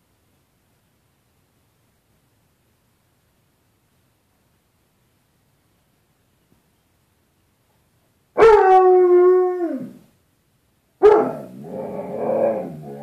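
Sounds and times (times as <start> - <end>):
dog howling: 8.4 - 10.0, 11.0 - 13.0.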